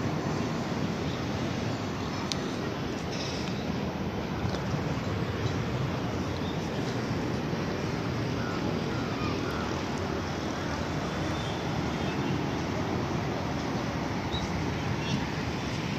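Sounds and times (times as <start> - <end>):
rumbling city noise: 0.0 - 15.9.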